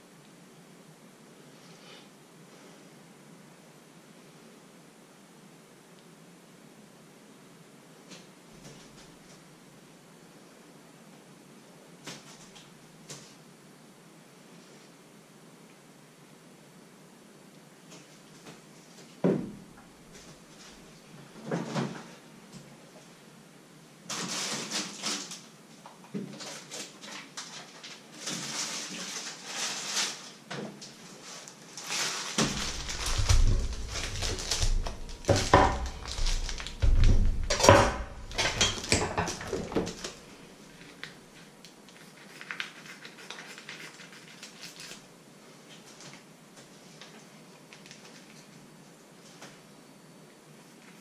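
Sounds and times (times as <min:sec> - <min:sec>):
plastic packaging crinkling: 0:26.4 - 0:42.8
things clattering on wooden counter: 0:32.4 - 0:40.2.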